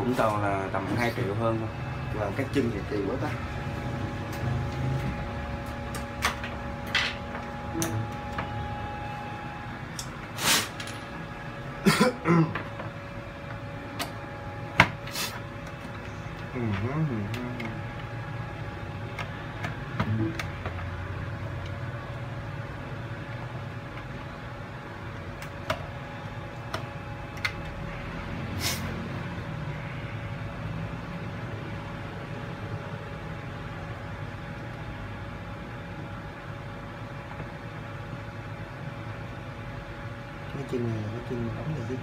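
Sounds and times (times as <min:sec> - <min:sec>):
electrical hum: 0:00.0 - 0:42.0
short hiss: 0:10.4 - 0:10.7.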